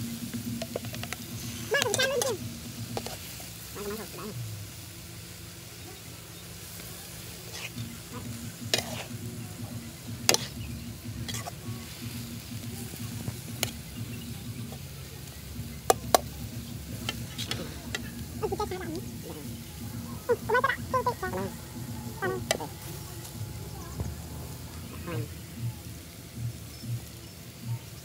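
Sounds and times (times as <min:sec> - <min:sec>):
food sizzling: 0:00.0 - 0:28.0
metal spatula clanking on wok: 0:07.5 - 0:09.1, 0:10.3 - 0:10.6.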